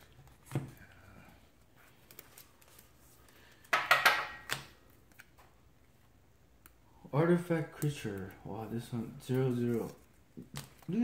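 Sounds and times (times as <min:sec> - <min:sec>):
trading cards rustling: 0:01.4 - 0:03.7, 0:07.5 - 0:11.0.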